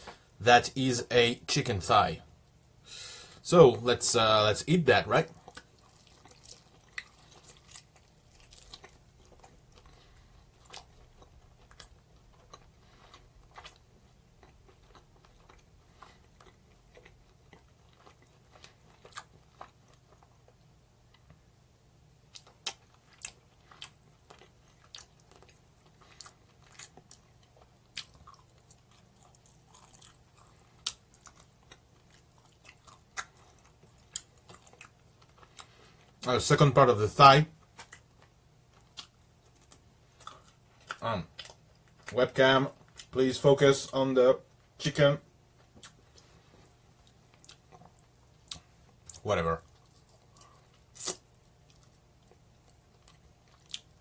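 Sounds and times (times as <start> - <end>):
person chewing: 5.3 - 21.3, 22.3 - 36.2, 37.6 - 42.2, 45.6 - 54.0.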